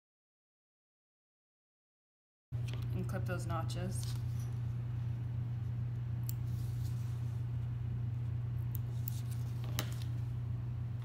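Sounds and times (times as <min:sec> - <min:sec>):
low electrical hum: 0:02.6 - 0:11.0.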